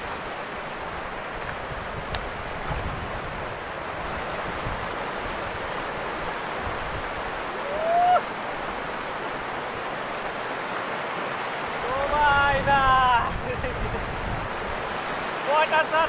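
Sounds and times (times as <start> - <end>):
wind on microphone: 0.0 - 8.8, 11.9 - 15.2
river rushing over rapids: 0.0 - 16.0.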